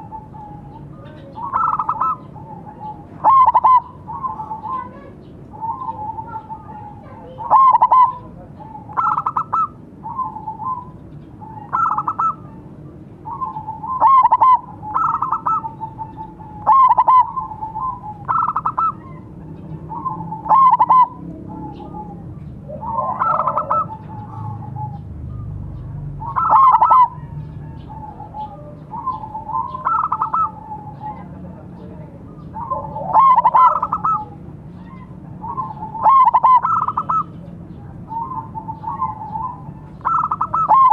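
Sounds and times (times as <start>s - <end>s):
dove cooing: 0.0s - 40.9s.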